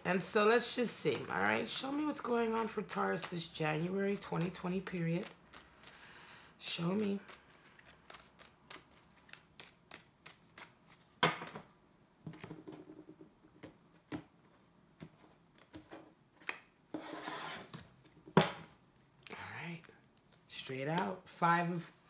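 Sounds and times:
cards being shuffled: 6.7s - 11.2s.

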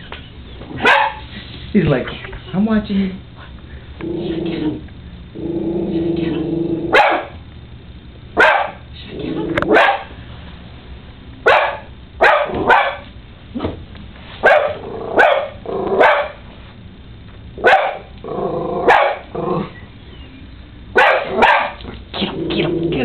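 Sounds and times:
dog barking: 0.8s - 1.2s, 6.9s - 7.4s, 8.4s - 8.8s, 9.7s - 10.2s, 11.4s - 13.1s, 14.4s - 16.4s, 17.6s - 18.1s, 18.8s - 19.3s, 21.0s - 21.8s.

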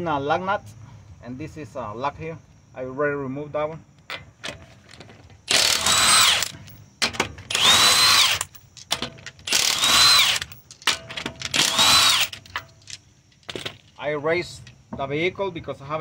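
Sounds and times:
impact wrench whining: 5.5s - 13.8s.

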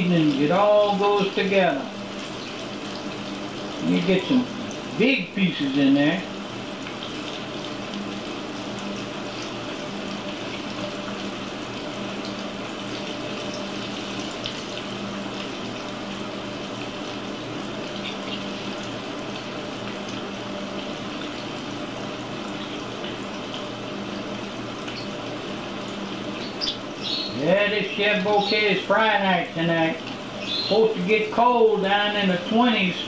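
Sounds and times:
deep frying bubbling sizzle: 0.0s - 33.0s
oil crackling: 6.5s - 31.4s.

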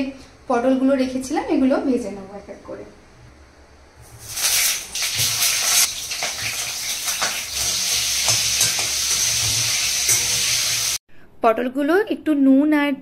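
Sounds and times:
vegetables sizzling in hot oil: 4.1s - 11.0s.

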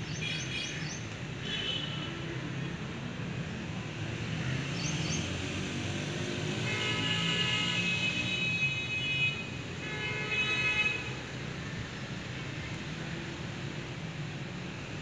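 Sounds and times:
low rumble of traffic: 0.0s - 15.0s.

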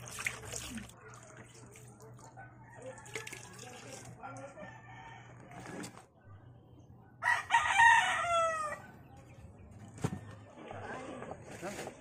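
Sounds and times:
rooster crowing: 7.2s - 8.9s.

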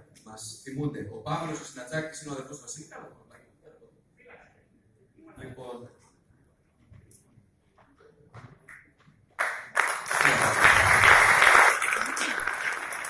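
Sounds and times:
audience applause: 9.4s - 13.0s.

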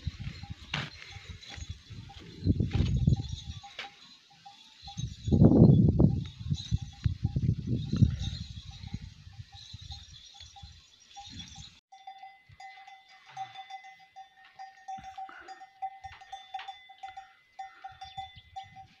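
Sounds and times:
wind thumping on microphone: 0.0s - 3.6s, 5.0s - 10.2s
camel bells ringing: 0.0s - 19.0s.

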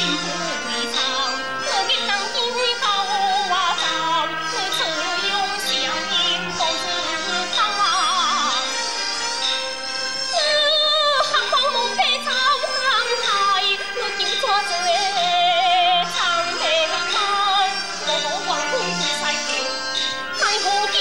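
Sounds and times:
instrumental accompaniment: 0.0s - 21.0s.

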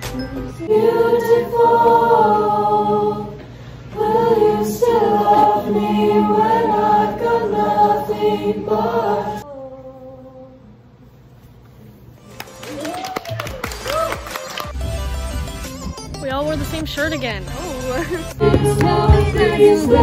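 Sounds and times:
show choir singing: 0.6s - 10.8s, 18.3s - 20.0s.

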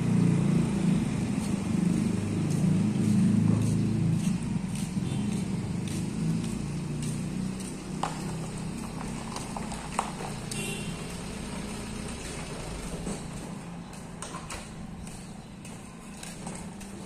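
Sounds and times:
pickup truck engine running: 8.0s - 10.3s.

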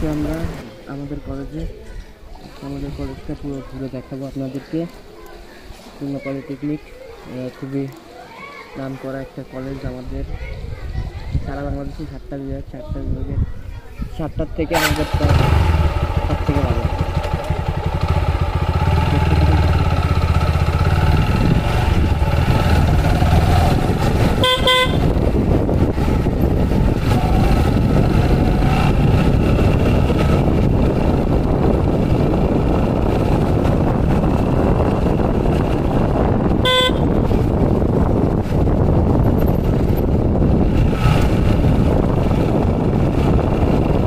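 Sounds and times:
traffic noise: 0.0s - 44.0s
wind noise: 9.6s - 44.0s
motorcycle engine rumble: 14.7s - 44.0s
vehicle horn honks: 24.4s - 25.2s, 36.6s - 37.2s.

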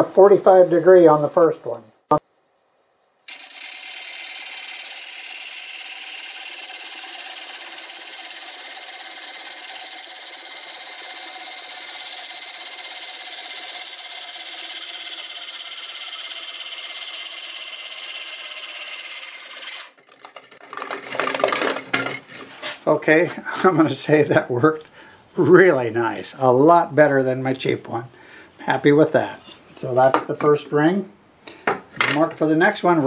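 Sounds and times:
parting blade scraping spinning wood: 3.3s - 22.9s.

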